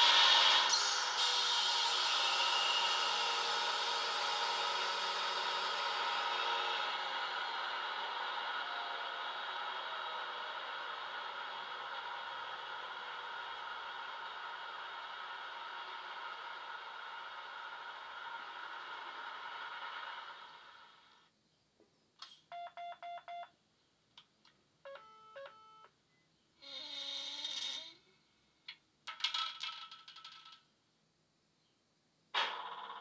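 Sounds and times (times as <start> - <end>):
electronic beeps: 24.9 - 25.9.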